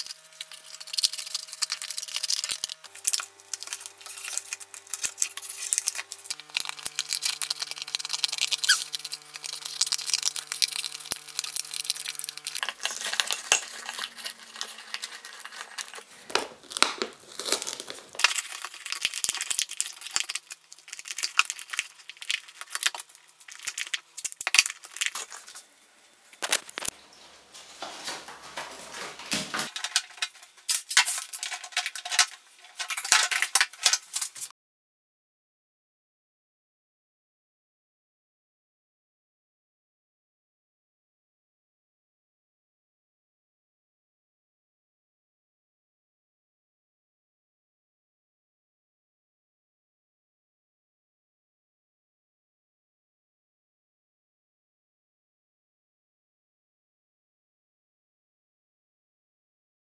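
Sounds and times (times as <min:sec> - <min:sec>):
crinkling and tearing by hand: 0:00.0 - 0:25.7, 0:26.3 - 0:34.5.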